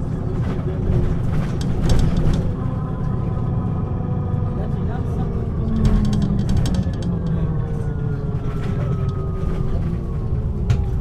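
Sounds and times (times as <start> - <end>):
bus diesel engine droning: 0.0 - 11.0.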